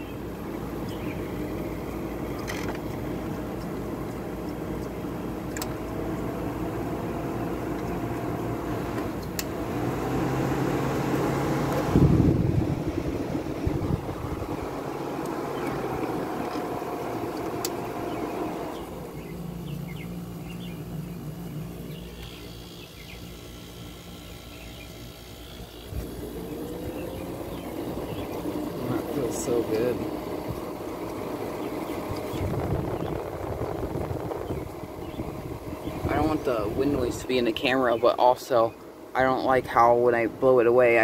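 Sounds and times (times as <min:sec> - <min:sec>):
window air conditioner humming: 0:00.0 - 0:41.0
faint wavering whine: 0:10.4 - 0:40.7.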